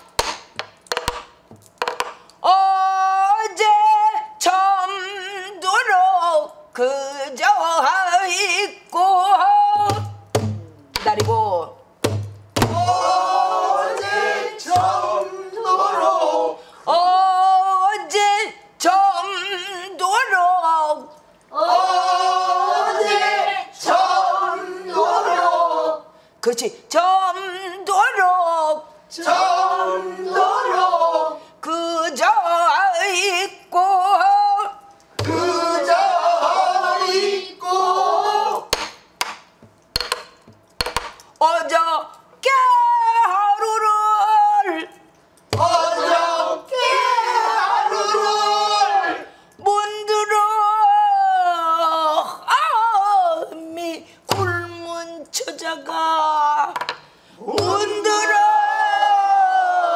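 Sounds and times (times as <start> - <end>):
drumstick knocking on drum: 0.2 - 2.2, 9.8 - 12.9, 40.0 - 41.2, 57.6 - 57.8
woman singing: 2.4 - 10.2, 16.9 - 21.1, 26.5 - 28.8, 31.6 - 34.8, 41.4 - 44.9, 49.6 - 56.8
barrel drum strokes: 9.8 - 13.0
person singing with wide vibrato: 12.7 - 26.3.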